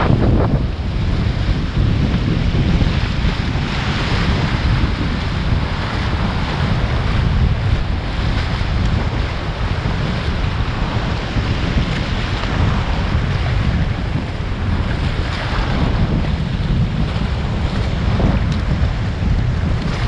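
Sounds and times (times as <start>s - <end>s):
waves breaking in shallows: 0.0s - 20.0s
wind buffeting microphone: 0.0s - 20.0s.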